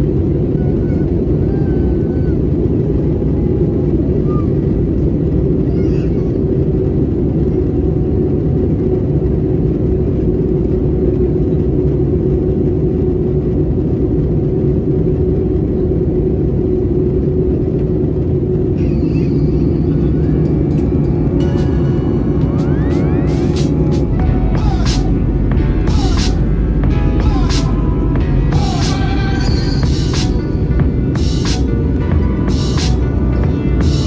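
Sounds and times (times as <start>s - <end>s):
aircraft engines and airflow rumble: 0.0s - 34.0s
steady cabin hum: 0.0s - 34.0s.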